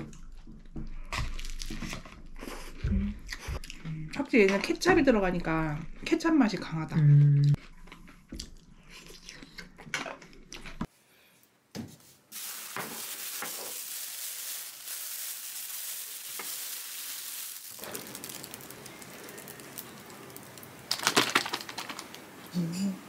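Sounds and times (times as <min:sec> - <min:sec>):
plastic bag crinkling: 0:12.3 - 0:22.4
loud clicks and clatter: 0:20.9 - 0:22.2.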